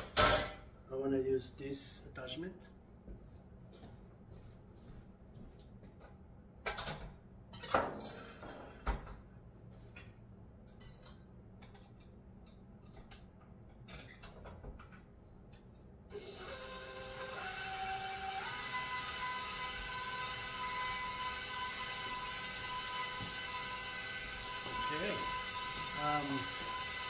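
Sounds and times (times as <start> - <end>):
stand mixer motor whine: 16.2 - 27.0.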